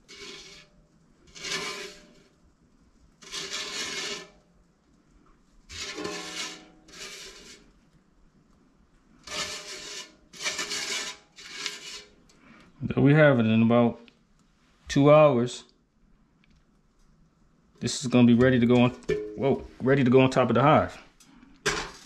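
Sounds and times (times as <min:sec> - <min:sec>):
spatula scraping a metal pot: 0:00.0 - 0:02.3, 0:03.2 - 0:04.5, 0:05.7 - 0:07.7, 0:09.2 - 0:12.3.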